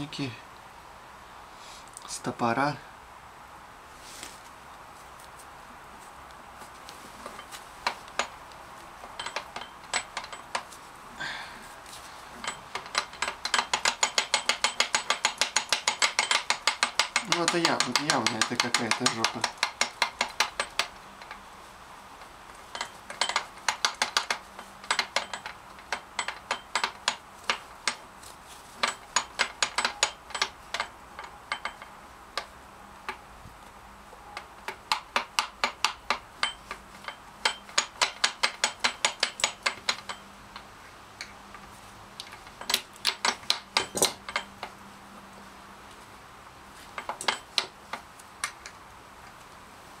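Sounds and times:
gearbox sharp metallic clicks: 0:12.4 - 0:21.4, 0:22.7 - 0:28.0, 0:34.3 - 0:41.4, 0:42.2 - 0:44.8, 0:47.0 - 0:48.8.

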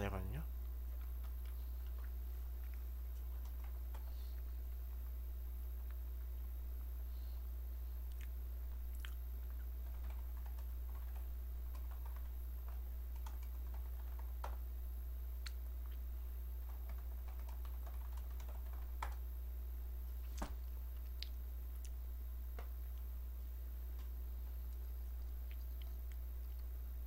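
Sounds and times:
steady low hum: 0:00.0 - 0:27.0
computer keyboard typing: 0:03.1 - 0:04.2, 0:09.5 - 0:14.7, 0:16.6 - 0:19.2.

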